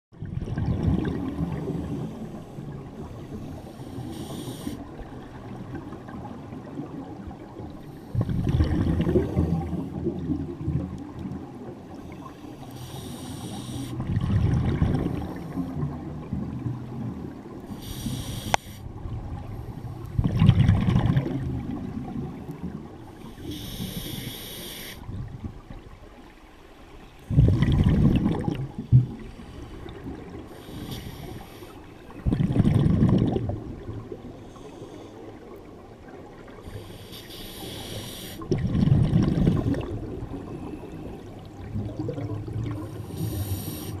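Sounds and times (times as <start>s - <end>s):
regulator inhale hiss: 2.0s - 5.0s, 12.1s - 14.0s, 17.7s - 18.9s, 23.1s - 25.1s, 29.2s - 32.1s, 34.4s - 35.4s, 36.6s - 38.4s, 42.8s - 44.0s
exhale bubbling rush: 7.9s - 10.8s, 27.3s - 33.6s, 36.5s - 44.0s.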